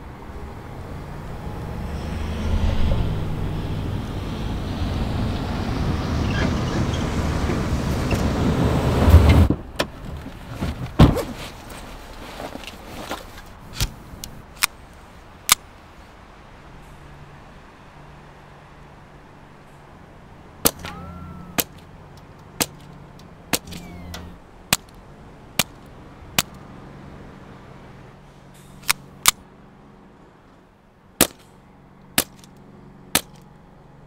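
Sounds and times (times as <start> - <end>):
heavy thump: 10.6 - 11.4
truck engine running: 16.7 - 34.0
sharp clicks: 20.6 - 25.0, 25.6 - 26.6, 31.2 - 32.6, 33.2 - 33.5.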